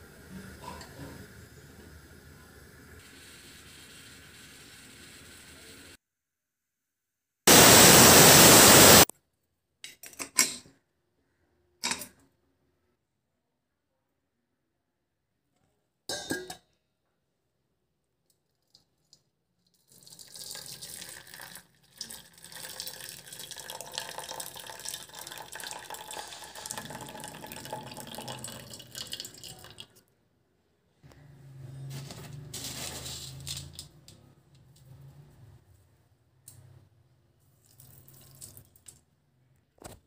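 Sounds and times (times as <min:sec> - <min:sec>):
liquid pouring into metal bowl: 0:19.6 - 0:30.0, 0:37.6 - 0:39.0.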